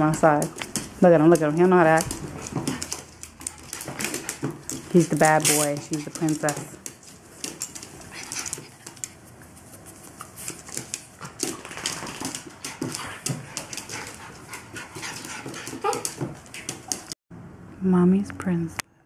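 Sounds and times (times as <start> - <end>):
dog claws clicking on wood floor: 0.0 - 9.3, 10.2 - 17.2
dog panting: 7.6 - 17.2.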